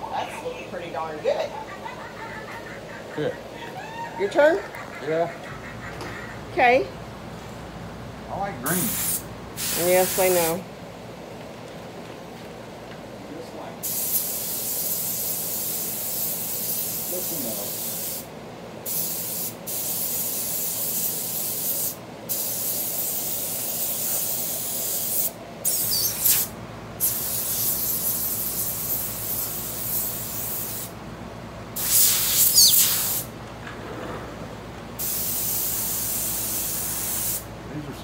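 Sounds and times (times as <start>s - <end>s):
airbrush hissing: 8.7s - 10.4s, 13.8s - 18.3s, 18.9s - 30.9s, 31.8s - 33.3s, 35.0s - 37.5s.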